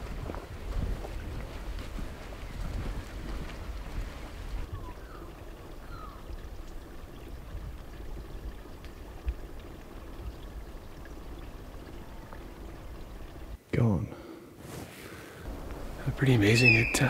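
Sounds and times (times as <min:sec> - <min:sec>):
wind rumbling on microphone: 0:00.0 - 0:13.6.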